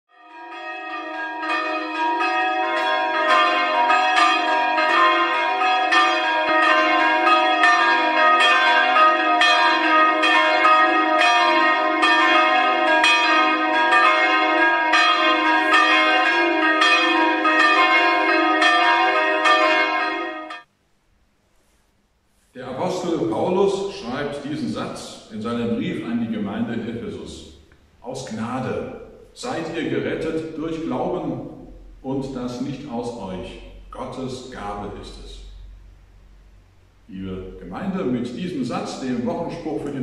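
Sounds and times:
church bells ringing: 0.1 - 20.7.

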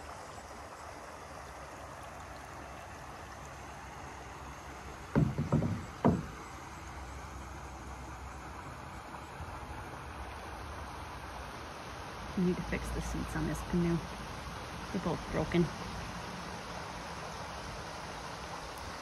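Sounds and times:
wind: 0.0 - 19.0
paddle knocking against canoe: 5.1 - 6.6.

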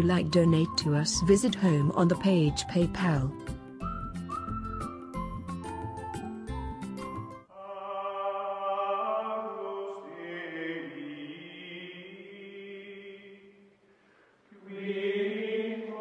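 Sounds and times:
choir-like chanting voices: 7.5 - 13.7, 14.5 - 16.0.

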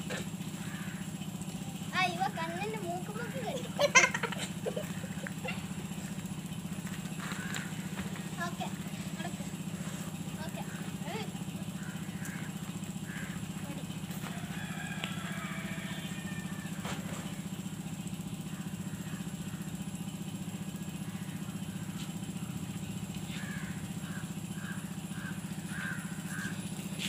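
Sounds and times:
engine droning with fast pulsing: 0.0 - 27.0.

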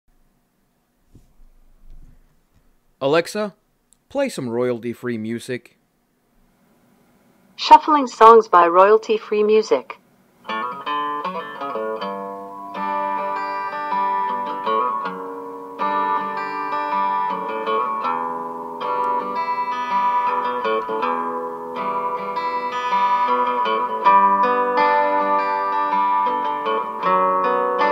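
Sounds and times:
acoustic guitar ballad from speaker: 10.4 - 27.9.

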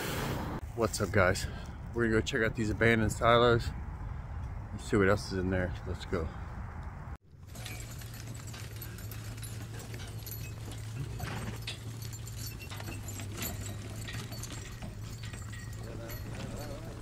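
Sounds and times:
harness jingling: 7.3 - 17.0
horse hooves clip-clopping: 7.3 - 17.0.

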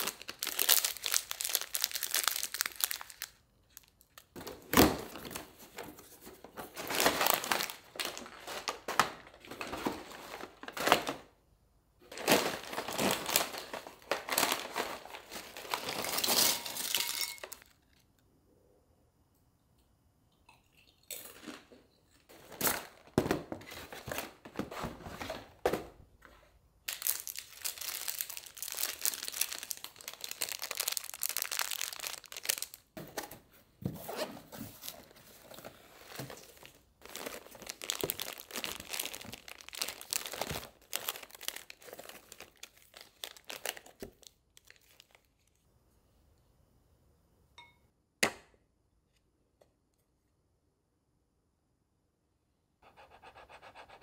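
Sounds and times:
plastic wrappers crinkling: 0.0 - 11.4, 12.0 - 18.0, 26.9 - 33.3, 34.1 - 45.6.

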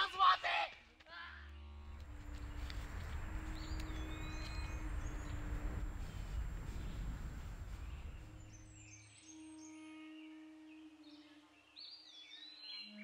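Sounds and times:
low outdoor rumble: 1.0 - 8.9.

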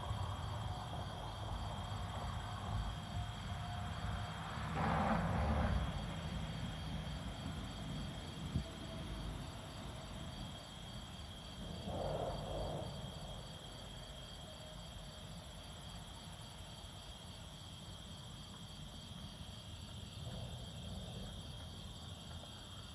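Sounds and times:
crickets trilling: 0.0 - 22.9
wind rumble on microphone: 4.7 - 14.0.

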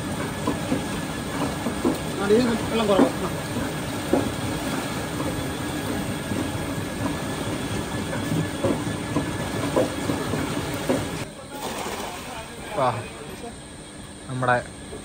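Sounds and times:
pump motor humming: 0.0 - 13.8
water gushing into a channel: 9.8 - 12.7.

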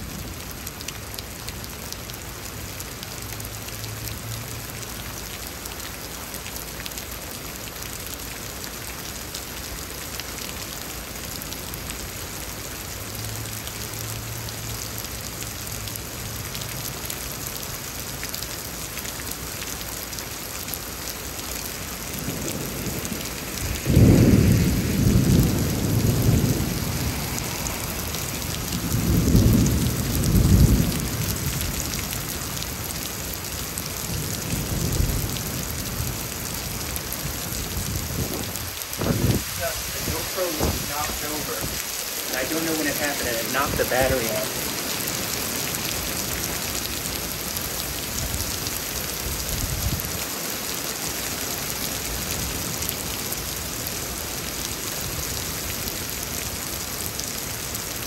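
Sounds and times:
heavy rain: 0.0 - 58.0
rolling thunder: 22.2 - 31.8, 37.6 - 41.8.

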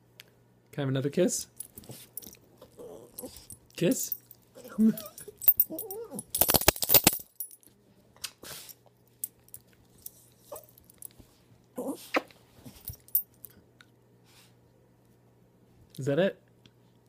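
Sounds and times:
metal collar tag jingling: 1.6 - 7.6, 12.8 - 13.5.

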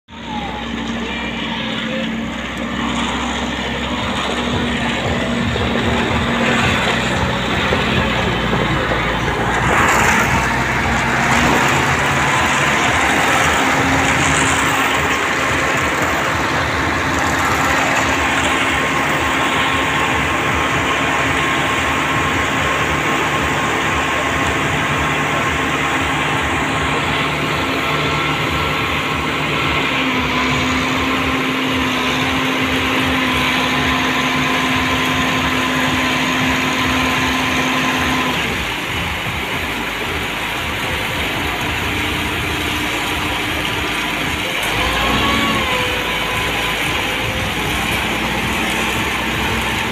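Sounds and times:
diesel engine running: 0.0 - 49.9
concrete mixer drum turning: 0.1 - 49.9.

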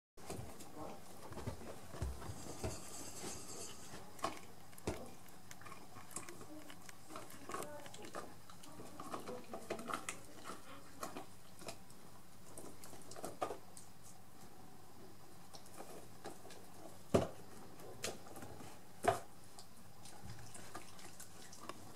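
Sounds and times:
dog gnawing plastic tube: 4.0 - 14.2.

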